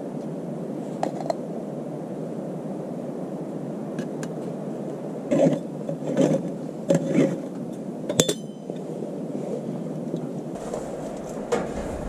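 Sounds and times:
steady low hum: 0:10.5 - 0:12.0
metal scrapes: 0:10.6 - 0:12.0.

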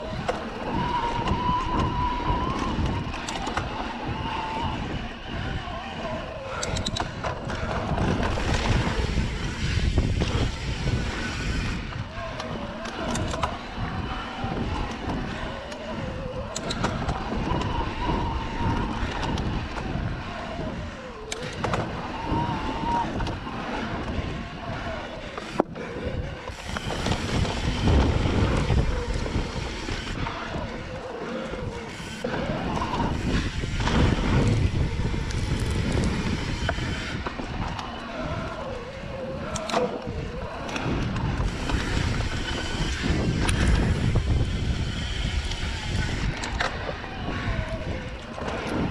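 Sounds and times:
bike rattling over bumps: 0:00.0 - 0:48.9
tyres rumbling on dirt: 0:00.0 - 0:48.9
wind on microphone: 0:00.0 - 0:48.9
electric motor whine: 0:26.5 - 0:48.9.

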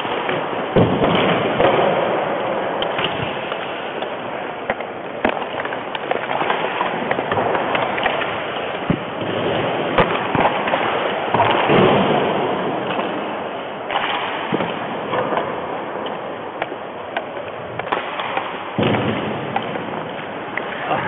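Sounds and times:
skates scraping on ice: 0:00.0 - 0:21.0
hockey stick clacking against puck: 0:13.9 - 0:18.6.

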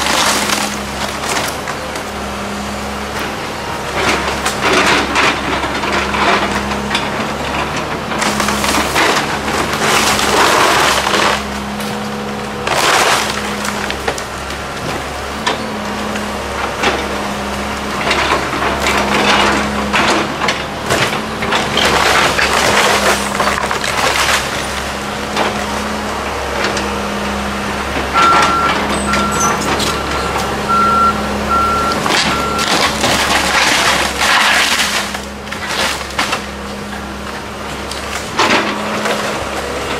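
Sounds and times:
wood cracking and splintering: 0:00.0 - 0:02.2, 0:03.1 - 0:27.0, 0:31.5 - 0:39.9
excavator diesel engine running: 0:00.0 - 0:39.9
alarm beeping: 0:28.2 - 0:32.7.

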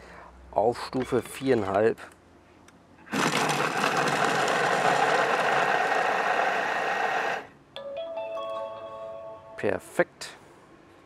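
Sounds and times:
food processor blade whirring: 0:03.0 - 0:07.5.

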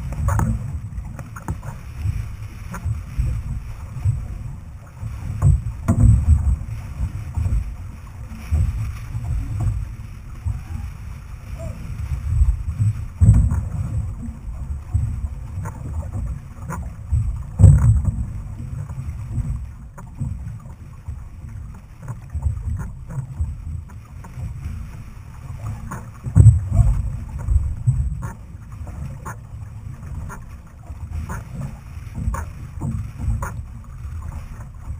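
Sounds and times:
wind buffeting camera: 0:00.0 - 0:20.7, 0:21.4 - 0:34.9
water rumbling against hull: 0:00.0 - 0:34.9.

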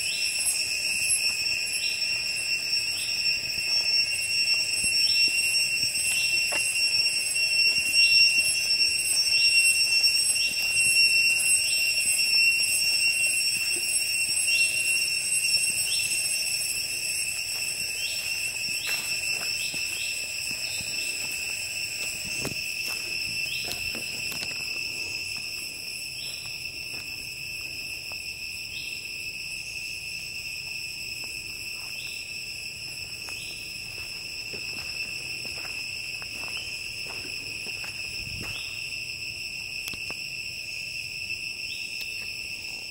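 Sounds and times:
faint insect chirps: 0:00.0 - 0:42.9
insect high-pitched whine: 0:00.0 - 0:42.9.

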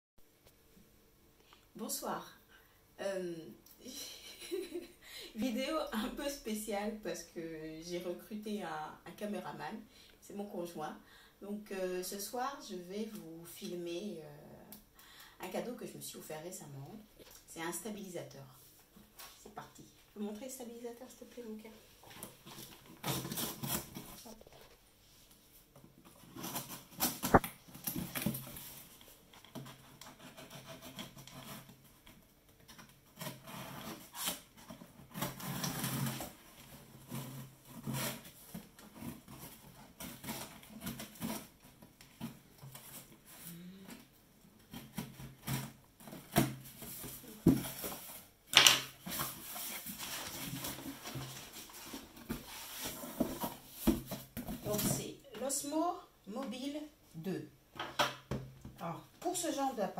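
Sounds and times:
cardboard box rustling: 0:44.8 - 0:48.3, 0:49.0 - 0:55.0.

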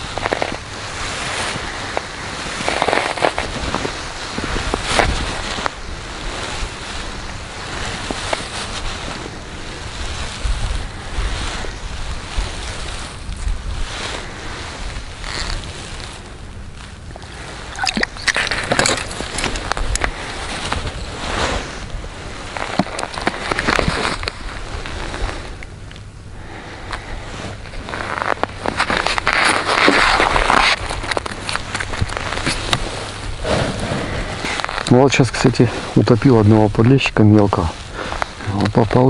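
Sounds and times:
rustling handling noises: 0:00.0 - 0:26.1
wind buffeting microphone: 0:00.0 - 0:39.0.

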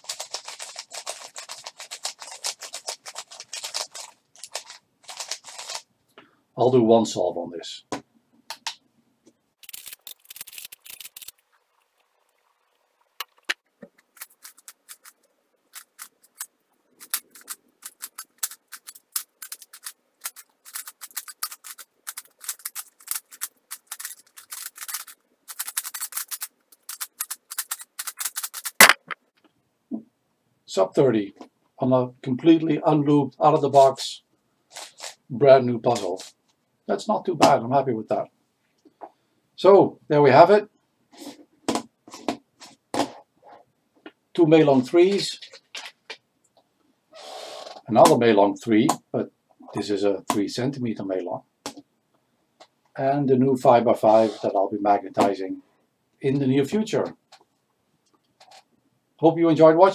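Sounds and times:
plastic puzzle cube clicking: 0:15.8 - 0:29.1.

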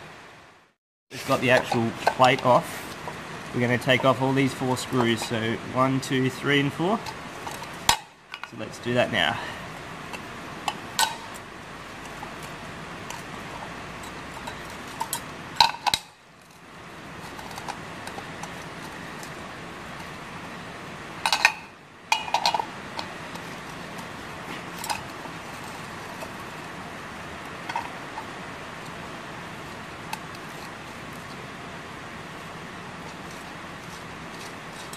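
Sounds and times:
spanner clinking against bolts: 0:21.2 - 0:23.2.

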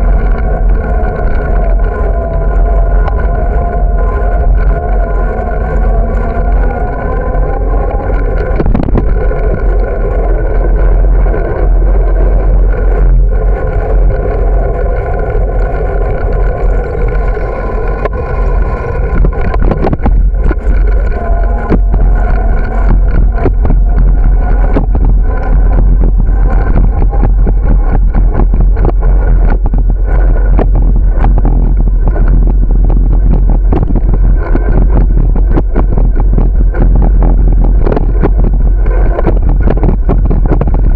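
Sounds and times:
bike and mount rattling: 0:00.0 - 0:40.9
wind and road rumble: 0:00.0 - 0:40.9.

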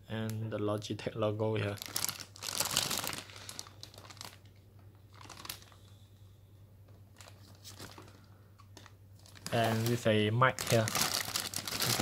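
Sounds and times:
plastic bag crinkling: 0:01.6 - 0:05.9, 0:07.1 - 0:12.0.

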